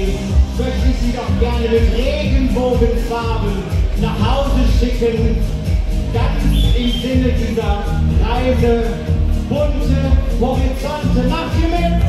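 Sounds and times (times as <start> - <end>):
pop music over loudspeakers: 0.0 - 12.0.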